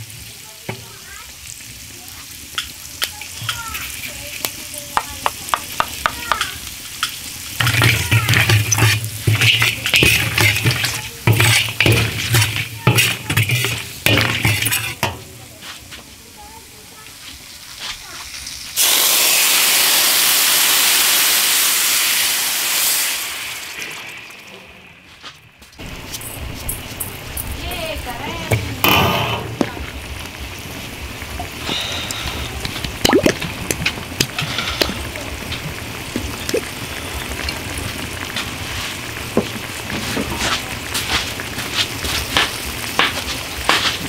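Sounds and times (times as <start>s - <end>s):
liquid sizzling in hot oil: 0.0s - 44.0s
metal ladle scraping a wok: 7.5s - 15.3s, 34.4s - 35.0s.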